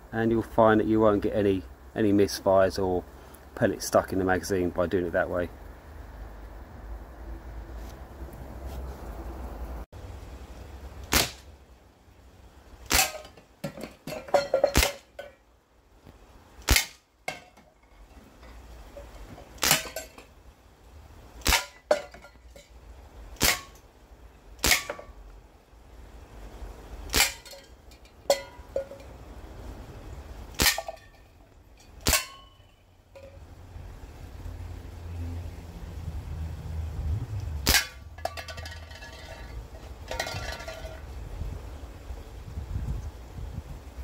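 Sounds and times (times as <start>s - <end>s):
air rifle firing pops: 11.1s - 11.5s.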